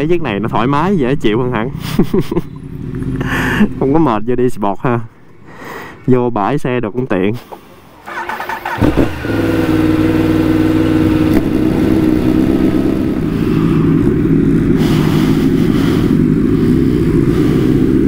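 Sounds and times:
motorcycle engine running: 1.7s - 4.0s, 8.1s - 18.0s.

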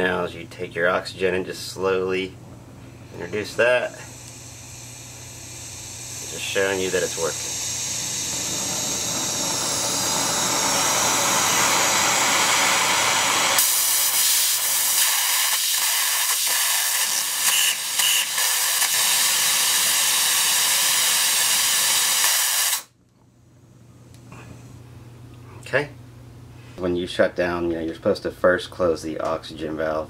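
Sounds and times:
torch flame hissing: 3.1s - 22.9s.

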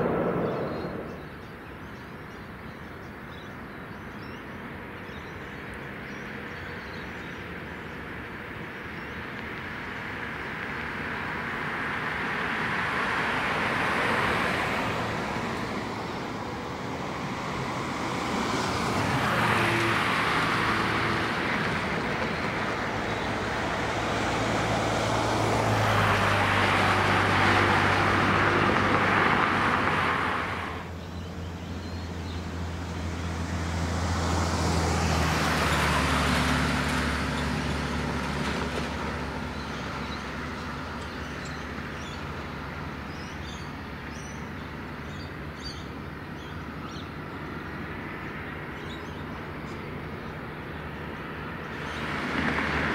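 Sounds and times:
distant jet engines rumbling: 0.0s - 3.3s.

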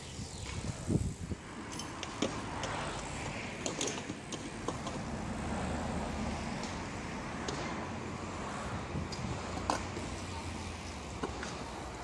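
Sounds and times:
traffic hum: 0.0s - 12.0s
bikes knocking on concrete: 1.7s - 5.2s, 9.0s - 12.0s.

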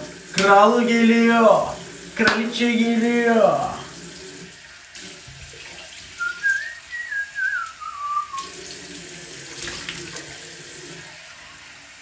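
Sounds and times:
tap water running into sink: 0.0s - 12.0s
whistled tune: 6.2s - 8.5s.

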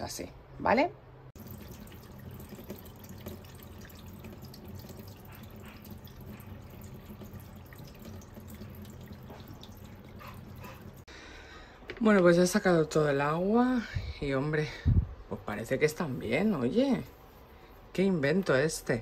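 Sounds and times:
water pouring into a steel sink: 1.4s - 11.0s.

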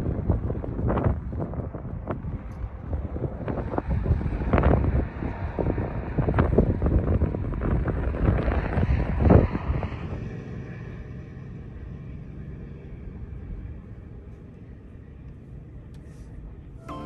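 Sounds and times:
wind buffeting microphone: 0.0s - 10.3s.

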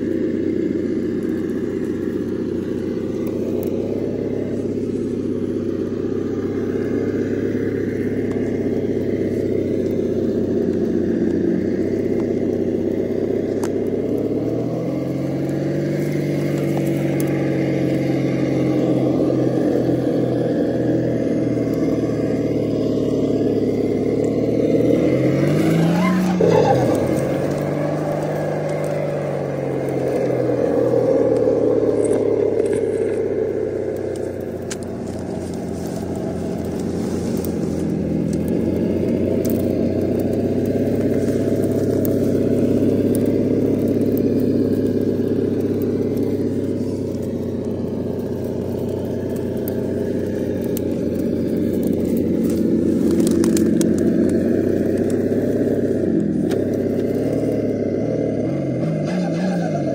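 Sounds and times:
simulated engine rumble: 0.0s - 59.9s
tyres crackling on rock and twigs: 0.0s - 59.9s.

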